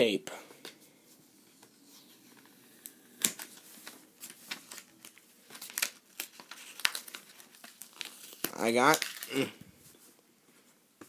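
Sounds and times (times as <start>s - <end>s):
packaging crinkling: 2.8s - 9.5s.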